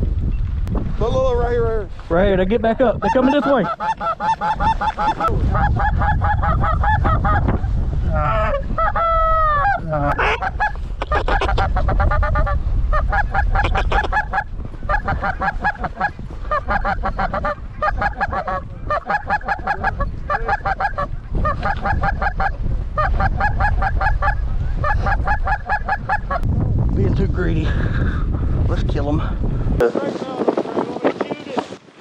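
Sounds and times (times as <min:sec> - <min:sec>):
wind rumble: 0:00.0 - 0:32.0
geese honking: 0:03.0 - 0:07.4, 0:08.6 - 0:26.4.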